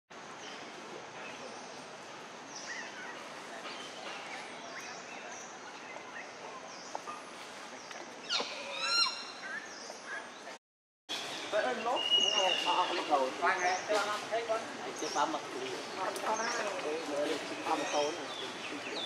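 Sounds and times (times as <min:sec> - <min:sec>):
loud high bird call: 0:08.2 - 0:09.4
bird chirps and whistles: 0:12.0 - 0:12.7.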